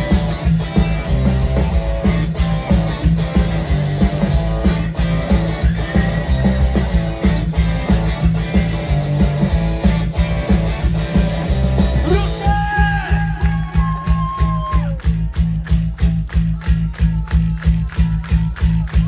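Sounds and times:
distorted electric guitars: 0:00.0 - 0:14.6
bass guitar: 0:00.0 - 0:19.0
steady drum beat: 0:00.0 - 0:19.0.

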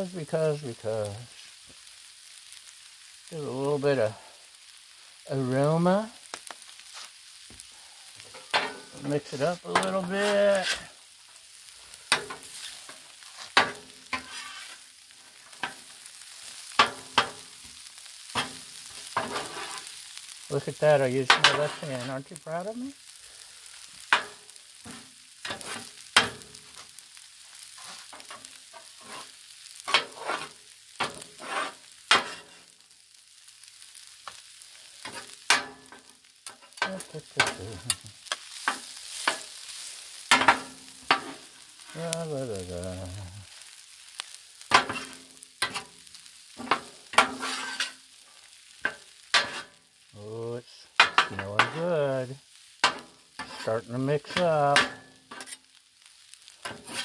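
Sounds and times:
fried rice sizzling: 0:00.0 - 0:57.0
metal spatulas scraping on griddle: 0:08.2 - 0:20.0, 0:20.7 - 0:22.4, 0:23.7 - 0:27.0, 0:27.6 - 0:32.8, 0:33.7 - 0:41.6, 0:43.5 - 0:49.8, 0:51.0 - 0:51.8, 0:52.8 - 0:57.0.

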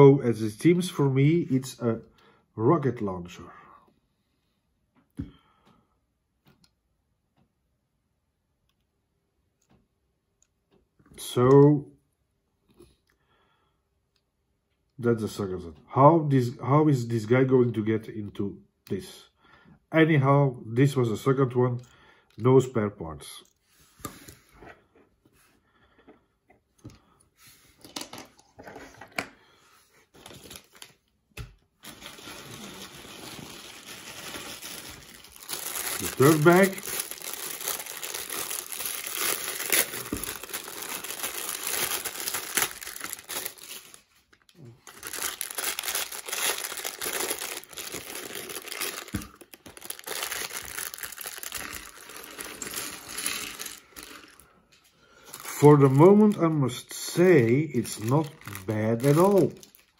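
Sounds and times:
plastic bag crinkling: 0:30.1 - 0:31.1, 0:31.7 - 0:59.9.

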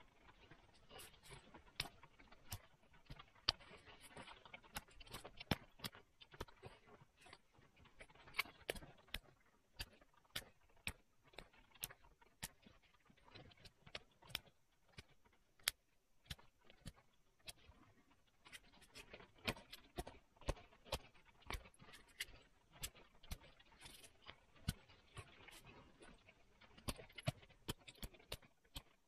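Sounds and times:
soft scratching: 0:00.1 - 0:10.5, 0:16.3 - 0:29.0.

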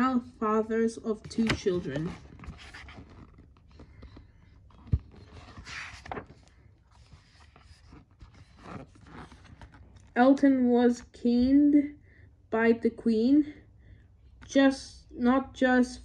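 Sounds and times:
book pages rustling: 0:01.2 - 0:10.2.

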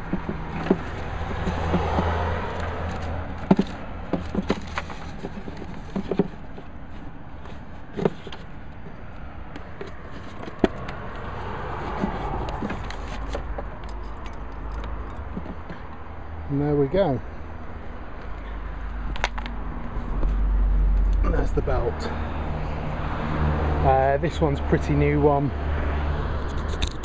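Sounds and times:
belt knocking and scraping on engine: 0:00.0 - 0:17.2.

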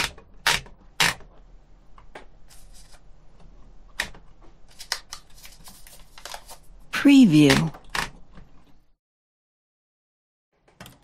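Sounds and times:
paper rustling: 0:02.5 - 0:03.0, 0:04.6 - 0:07.7.

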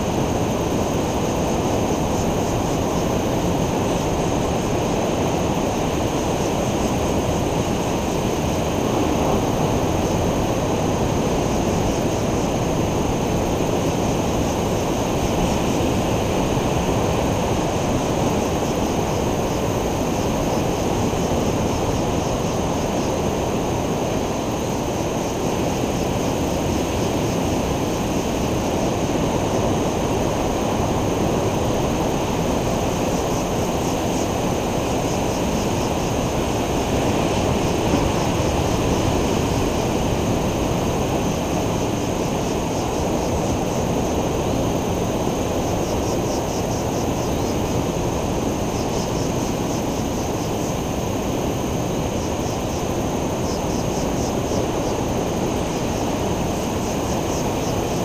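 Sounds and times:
ocean surf breaking: 0:00.0 - 0:58.0.

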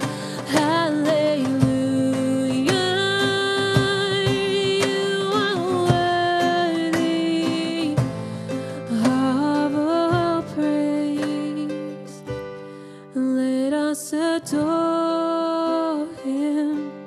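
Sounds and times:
rhythmic instrumental accompaniment: 0:00.0 - 0:12.9.

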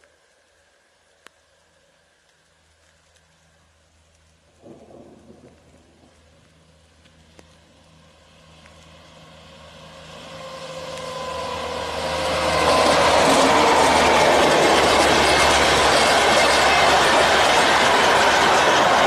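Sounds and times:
electric locomotive whine: 0:06.4 - 0:19.0
passing coaches rushing and rattling: 0:09.4 - 0:19.0.

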